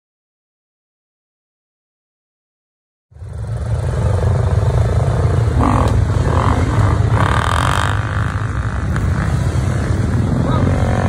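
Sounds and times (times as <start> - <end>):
dirt bike engines running: 3.1 - 11.0.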